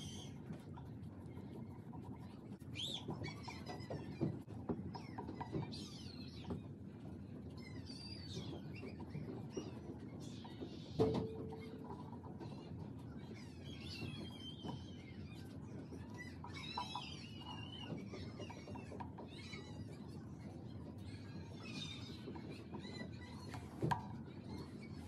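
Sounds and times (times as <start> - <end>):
birds chirping: 7.4 - 25.0.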